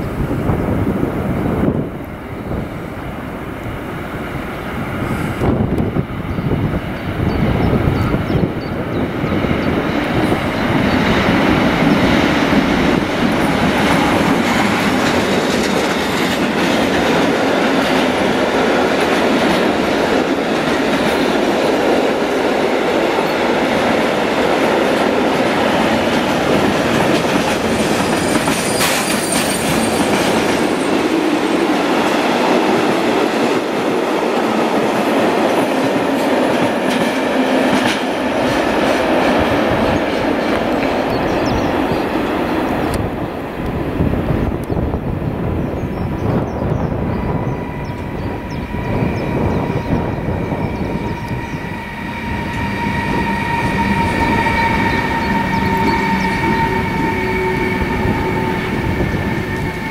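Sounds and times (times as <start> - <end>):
train wheels rumbling on rails: 0.0 - 59.9
clickety-clack over rail joints: 4.8 - 44.8
high wheel screech: 50.8 - 59.9.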